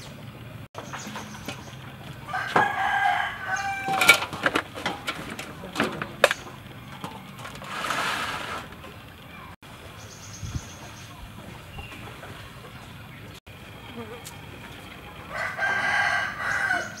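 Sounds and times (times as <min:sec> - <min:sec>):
rooster crowing: 0:02.1 - 0:04.4, 0:15.2 - 0:17.0
metal tray and basin clattering: 0:02.6 - 0:09.0.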